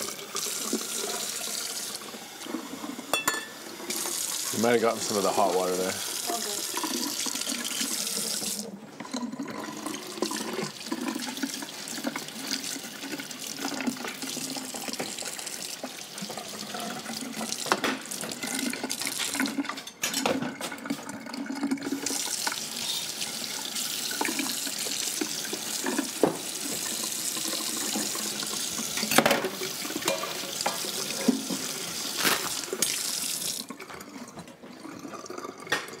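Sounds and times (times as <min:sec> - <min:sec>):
dishes clinking: 0:03.1 - 0:03.6, 0:29.0 - 0:30.9
tap running into sink: 0:17.2 - 0:21.1, 0:24.1 - 0:34.5.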